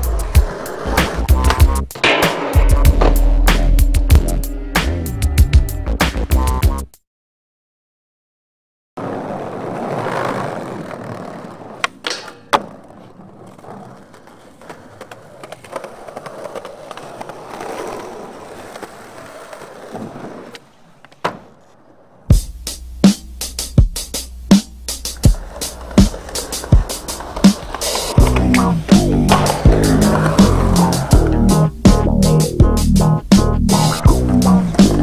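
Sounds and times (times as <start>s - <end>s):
skateboard wheels rolling on pavement: 0.0s - 2.1s, 9.0s - 22.9s, 24.8s - 35.0s
skateboard clacks: 0.1s - 3.2s, 9.0s - 22.3s, 25.0s - 32.2s.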